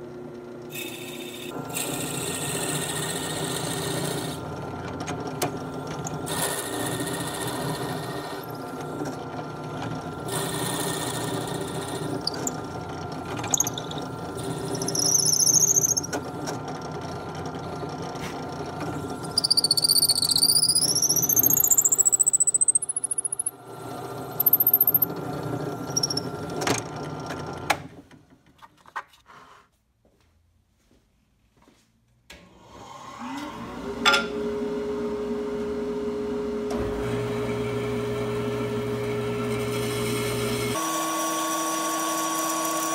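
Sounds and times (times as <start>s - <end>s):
drill press running: 0.0s - 28.0s, 36.6s - 42.9s
drill bit boring into wood: 0.7s - 4.4s, 6.0s - 9.0s, 10.2s - 16.4s, 19.1s - 23.6s, 24.2s - 25.2s, 25.8s - 26.4s, 40.7s - 42.9s
high squeals from drill bit: 13.5s - 16.1s, 19.2s - 23.6s, 24.4s - 25.1s, 25.9s - 26.3s.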